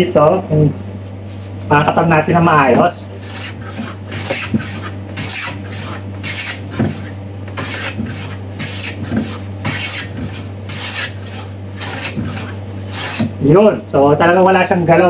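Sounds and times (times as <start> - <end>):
hand plane shaving wood: 3.2 - 13.4.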